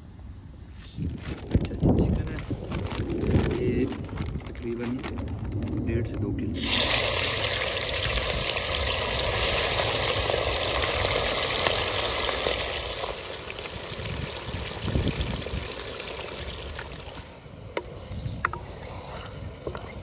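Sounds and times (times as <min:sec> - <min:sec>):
chicken sizzling in hot fat: 0:06.6 - 0:17.1.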